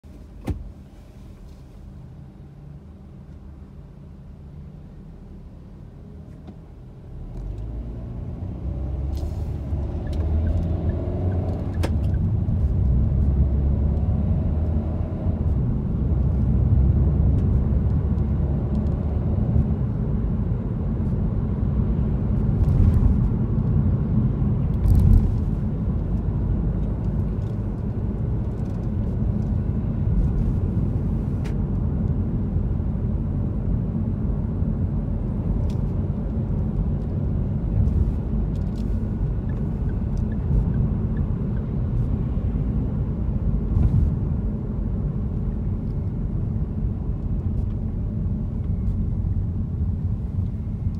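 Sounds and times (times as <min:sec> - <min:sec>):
car road and engine rumble: 0:00.0 - 0:50.9
short thump: 0:00.4 - 0:00.7.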